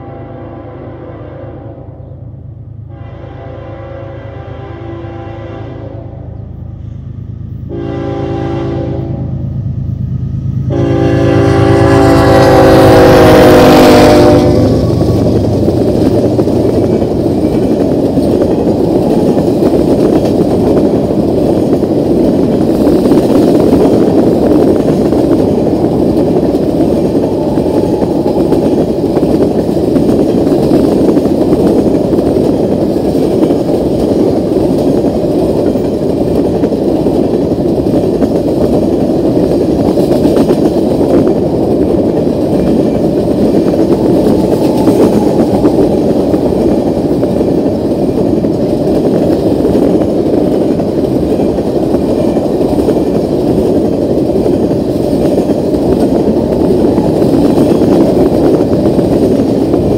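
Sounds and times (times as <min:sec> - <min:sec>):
locomotive horn blasts: 0:00.0 - 0:02.0, 0:02.9 - 0:06.4, 0:07.7 - 0:09.4, 0:10.7 - 0:14.8
train wheels on rails: 0:02.6 - 0:59.9
diesel engine rumble: 0:14.2 - 0:39.9.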